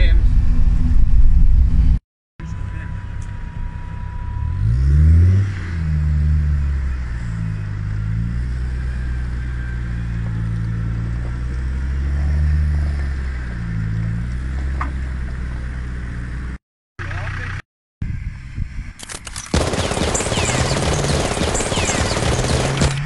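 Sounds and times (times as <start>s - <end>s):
off-road vehicle engine revving: 2.8s - 17.6s, 19.6s - 23.0s.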